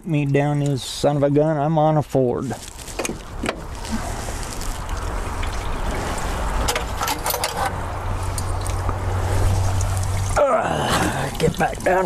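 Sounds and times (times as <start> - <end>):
liquid trickling into bucket: 3.2 - 7.0, 7.7 - 12.0.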